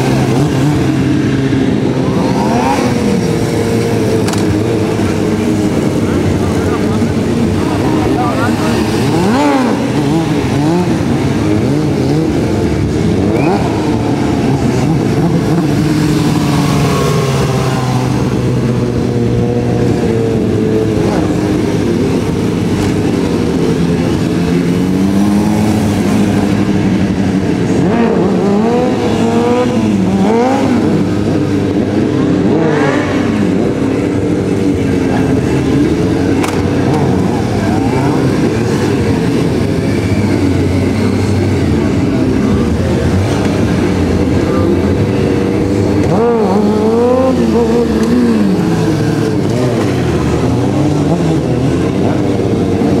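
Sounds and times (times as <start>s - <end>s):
motorcycles revving hard: 0.0s - 53.0s.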